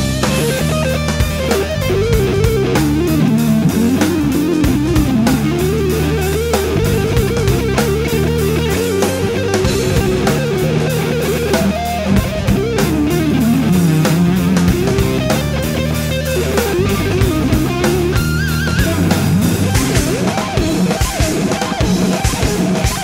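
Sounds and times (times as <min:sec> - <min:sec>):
bass guitar: 0:00.0 - 0:23.0
electric guitar melody: 0:00.0 - 0:23.0
steady drum beat: 0:00.0 - 0:23.0.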